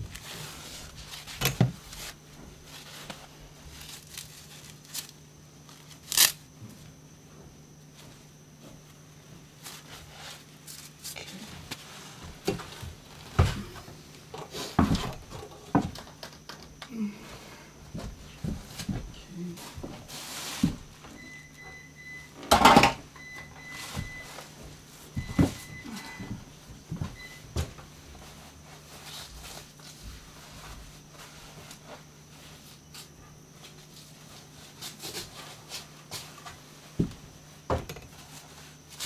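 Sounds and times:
faint low hum: 0.0 - 39.0
material tearing and crinkling: 3.1 - 6.4.

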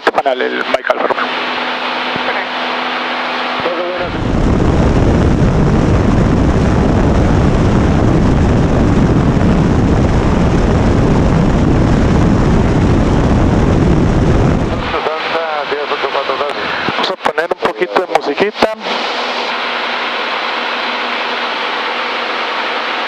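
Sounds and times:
aircraft engine and propeller: 0.0 - 23.0
engine drone through headset: 0.0 - 23.0
wind rush over microphone: 1.2 - 17.3.

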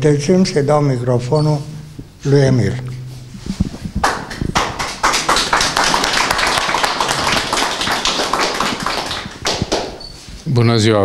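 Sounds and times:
microphone handling knocks: 2.9 - 5.0
audience applauding: 4.0 - 10.0.

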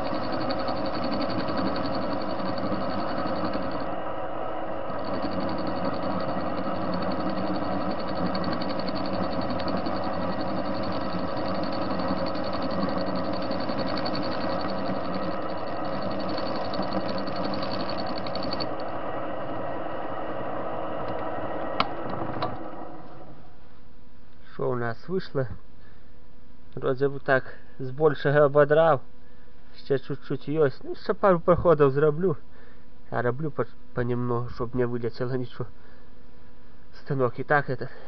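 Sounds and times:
metal lathe humming: 0.0 - 23.4
pulsing high whine: 0.0 - 23.7.

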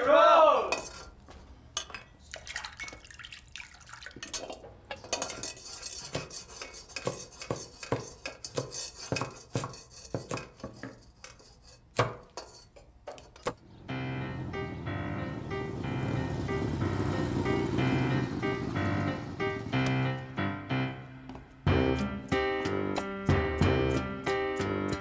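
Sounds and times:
metal pots and utensils clinking: 0.7 - 3.2, 4.0 - 13.6.

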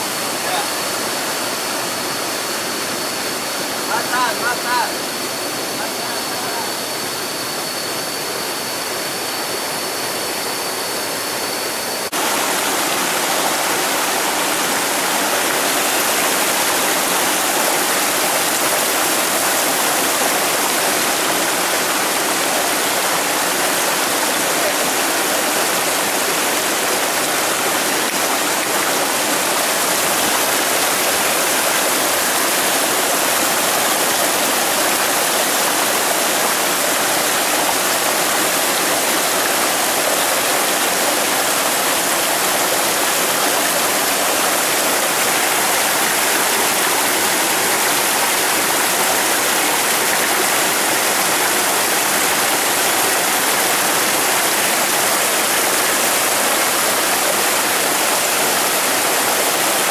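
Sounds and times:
stream water running over rocks: 12.0 - 59.9.

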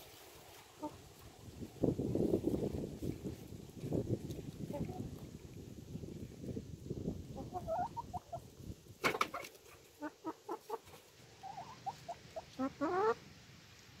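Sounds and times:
hens clucking: 0.8 - 1.2, 7.4 - 13.2.

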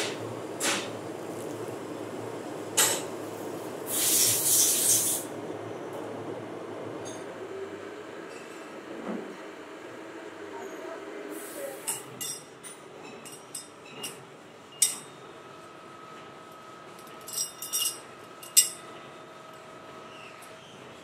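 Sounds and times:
steady machine hum: 0.0 - 3.9
metal parts clinking: 17.2 - 18.8.

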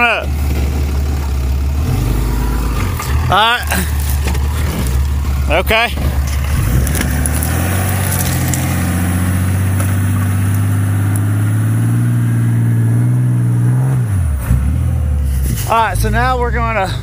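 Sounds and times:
pickup truck engine revving: 0.0 - 17.0.

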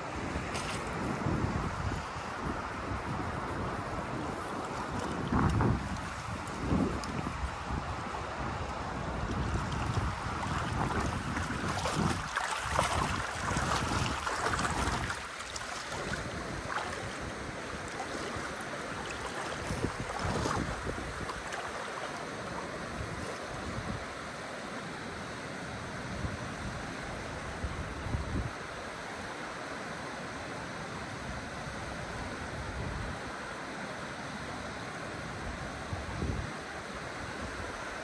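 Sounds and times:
wind buffeting microphone: 0.0 - 24.1
river water rushing: 0.0 - 38.0.

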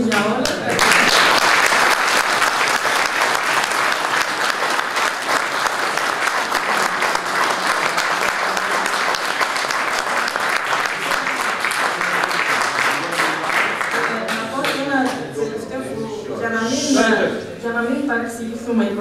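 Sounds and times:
audience applauding: 0.1 - 14.9.

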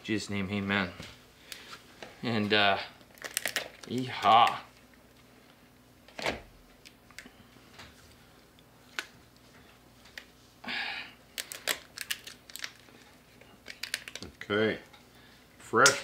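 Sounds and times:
lobster shells cracking: 3.1 - 4.6, 8.9 - 9.2, 11.3 - 13.0, 13.6 - 14.5.

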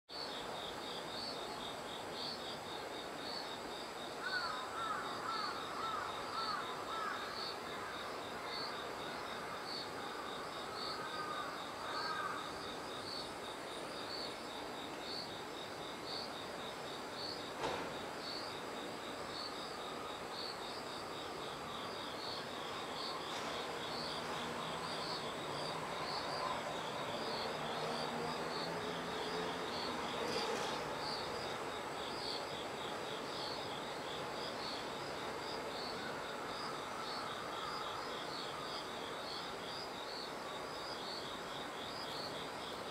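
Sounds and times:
crickets trilling: 0.1 - 42.9.

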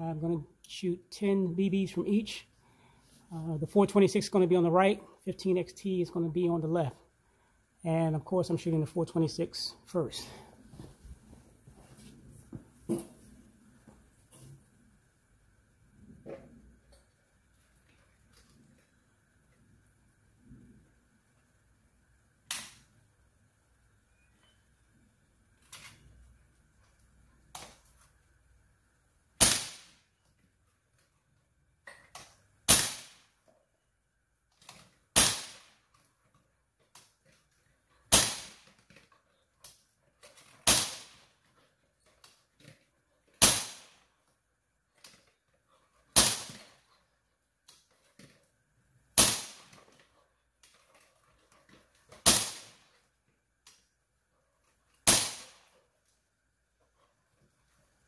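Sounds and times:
bb pistol shots: 29.4 - 30.0, 32.6 - 33.3, 35.1 - 35.8, 38.1 - 38.7, 40.6 - 41.3, 43.4 - 44.0, 46.1 - 46.7, 49.2 - 49.8, 52.2 - 52.9, 55.0 - 55.8.

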